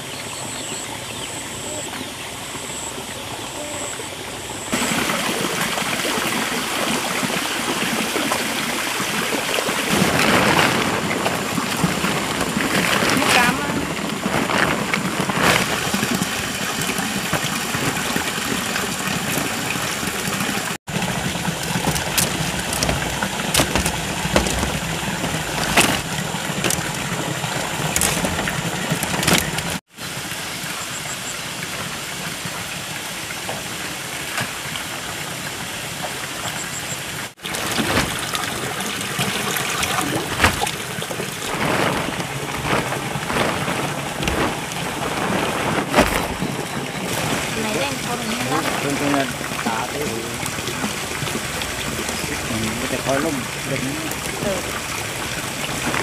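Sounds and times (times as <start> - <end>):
plastic tarpaulin rustling: 9.6 - 19.6, 20.2 - 29.8, 37.4 - 50.4, 55.4 - 56.0.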